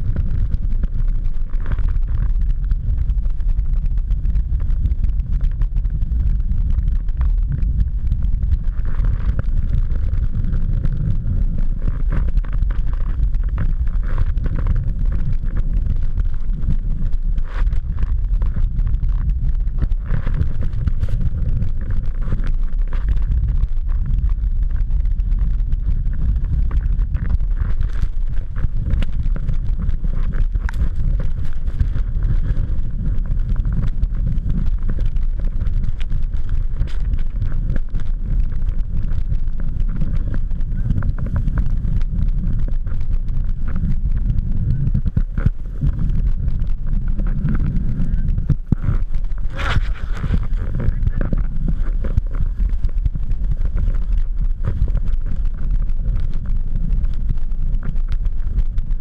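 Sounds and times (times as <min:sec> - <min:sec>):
clicks and crackles of snow: 0:00.0 - 0:59.0
wind rumbling on microphone: 0:00.0 - 0:59.0
skis scraping on snow: 0:48.7 - 0:52.8.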